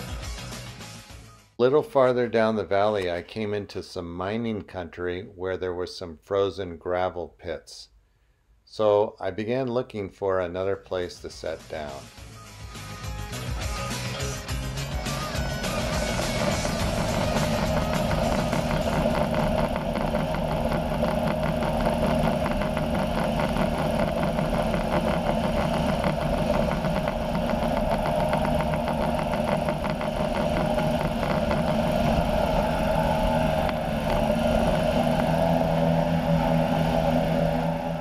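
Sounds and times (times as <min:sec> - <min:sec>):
ultralight engine and propeller: 0:14.8 - 0:38.0.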